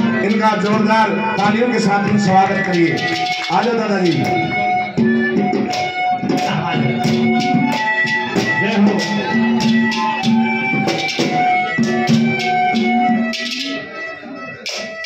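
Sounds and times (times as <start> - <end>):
jingling percussion beat: 0.0 - 15.0
sustained melodic instrument notes: 0.0 - 15.0.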